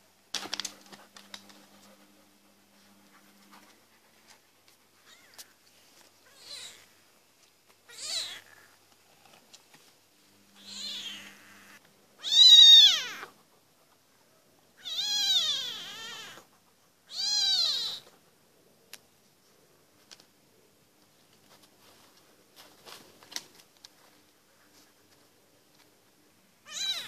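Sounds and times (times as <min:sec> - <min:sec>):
kitten mewing: 0:06.3 - 0:07.0, 0:07.9 - 0:08.8, 0:10.6 - 0:13.3, 0:14.8 - 0:16.5, 0:17.1 - 0:18.1, 0:26.6 - 0:27.0.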